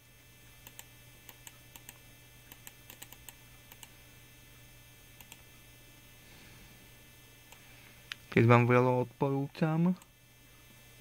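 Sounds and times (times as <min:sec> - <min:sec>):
steady low hum: 0:00.0 - 0:11.0
computer keys clicking: 0:00.6 - 0:03.9, 0:05.2 - 0:05.4.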